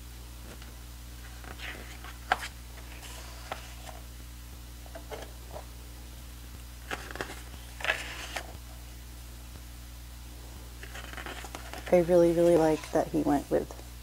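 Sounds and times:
steady low hum: 0.0s - 14.0s
paper pages rustling: 0.5s - 4.0s, 4.9s - 5.7s, 6.8s - 8.6s, 10.8s - 13.3s.

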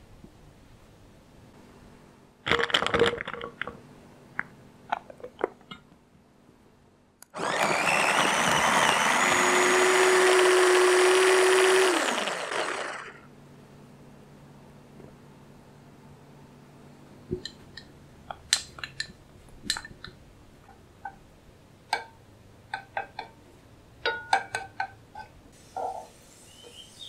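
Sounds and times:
small chopper motor whining: 7.4s - 13.3s.

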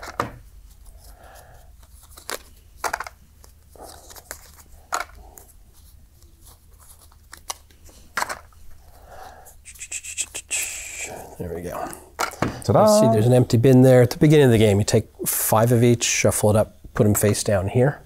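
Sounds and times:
game cards being handled: 0.0s - 8.6s.

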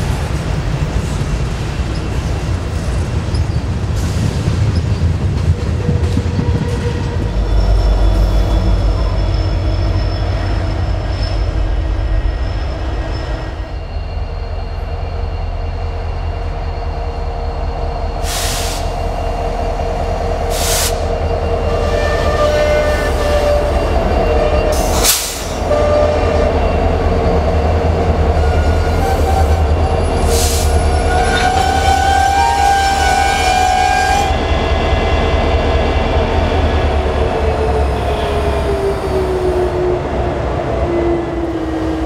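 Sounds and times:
diesel locomotive engines droning: 0.0s - 42.0s
train wheels rumbling on rails: 0.0s - 42.0s
air hiss bursts: 18.2s - 19.0s, 20.5s - 21.1s.

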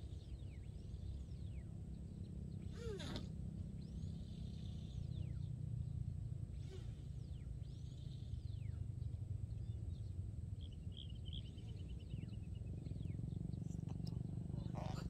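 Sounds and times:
birds whistling: 0.0s - 15.0s
bird trilling: 2.6s - 3.3s, 13.6s - 15.0s.

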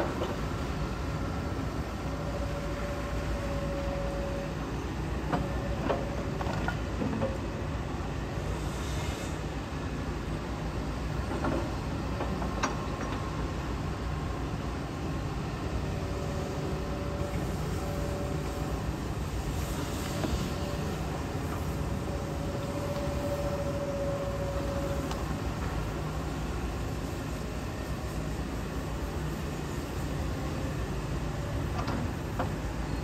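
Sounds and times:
excavator diesel engine running: 10.8s - 27.0s
faint whine: 20.4s - 25.4s.

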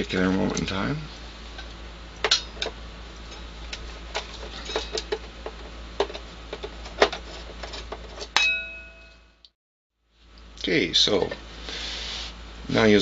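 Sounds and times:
metal clink ringing: 8.4s - 9.3s.

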